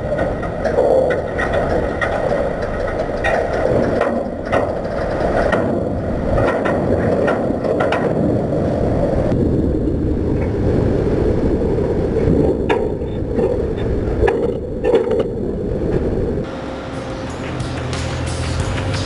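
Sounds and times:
low grinding rumble: 0.0 - 19.0
steel knocks and cracks: 0.2 - 8.2.

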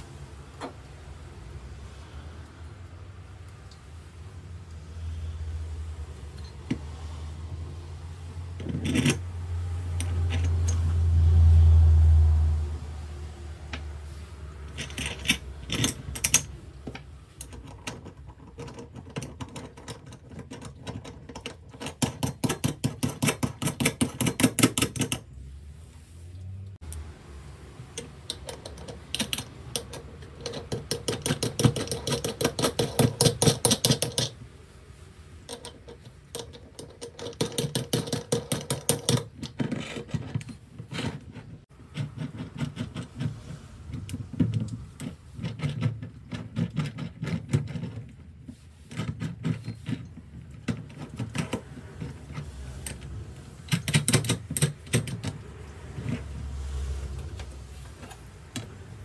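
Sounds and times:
rapid mechanical clicking: 28.0 - 34.4, 35.5 - 48.2.

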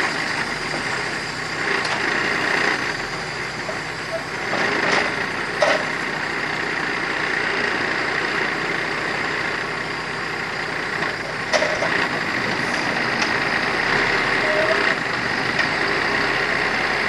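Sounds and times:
diesel truck engine running: 0.0 - 17.0
steady hydraulic whine: 10.8 - 16.8.

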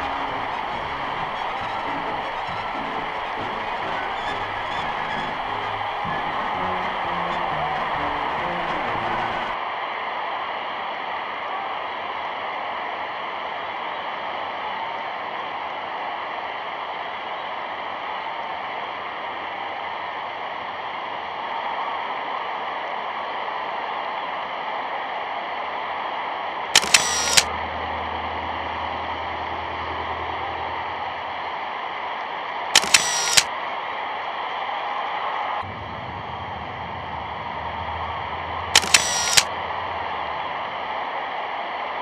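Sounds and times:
crackling clicks: 26.8 - 27.5, 32.8 - 33.5, 38.8 - 39.5.

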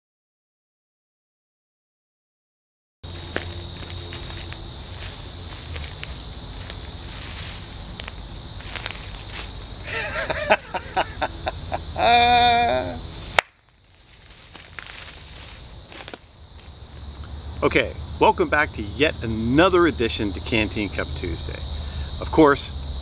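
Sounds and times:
high-pitched insect chorus: 3.0 - 23.0
man laughing or calling out: 9.9 - 13.0.

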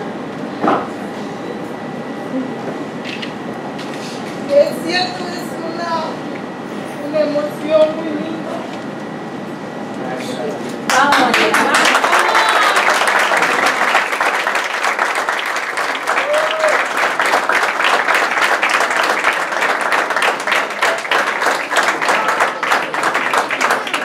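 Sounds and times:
crowd applauding: 10.9 - 24.0.

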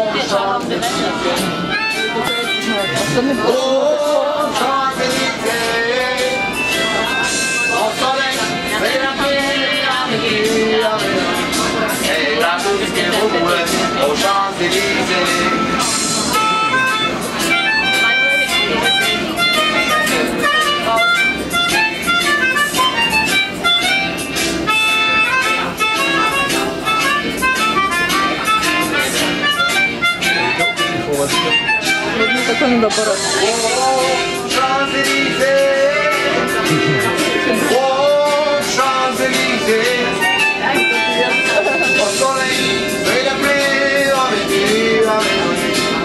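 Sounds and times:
person singing: 0.0 - 16.6, 32.0 - 46.0
lively reedy wind instrument music: 0.0 - 46.0
keytar chords: 0.1 - 46.0.

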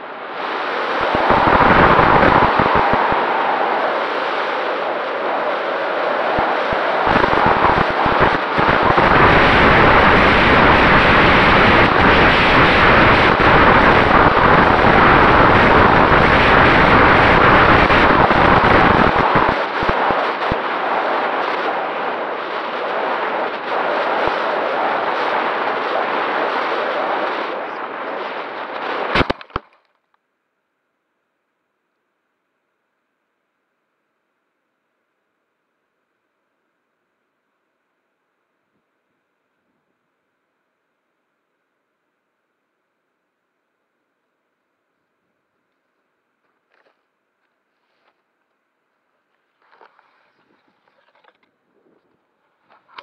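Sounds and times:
wind buffeting microphone: 0.5 - 29.3.

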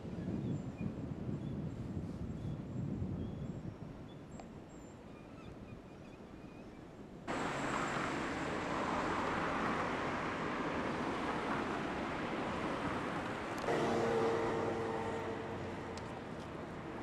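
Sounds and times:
loud steady rushing noise: 7.3 - 17.0.

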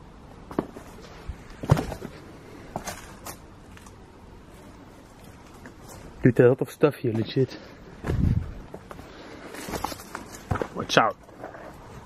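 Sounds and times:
footsteps crunching over twigs: 8.0 - 11.0.

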